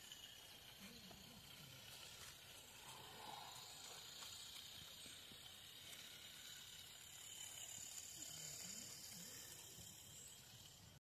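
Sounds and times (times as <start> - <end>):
steam hissing: 0.0 - 11.0.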